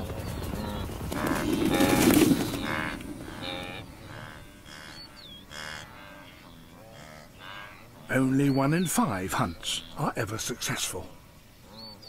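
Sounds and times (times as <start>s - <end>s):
hooves drumming on dry ground: 0.0s - 5.1s
wildebeest grunting: 0.6s - 11.9s.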